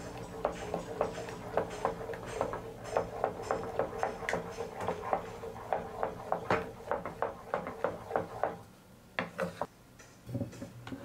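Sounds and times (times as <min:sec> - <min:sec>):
wooden spatula scraping metal saucepan: 0:09.2 - 0:09.7.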